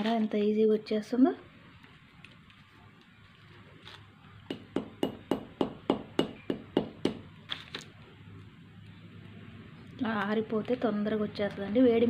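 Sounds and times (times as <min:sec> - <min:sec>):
metal cylinder knocking seeds: 0:04.4 - 0:07.3.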